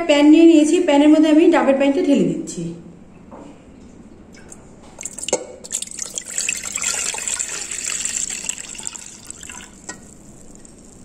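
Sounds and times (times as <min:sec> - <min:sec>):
liquid pouring into a pan: 0:05.0 - 0:11.0.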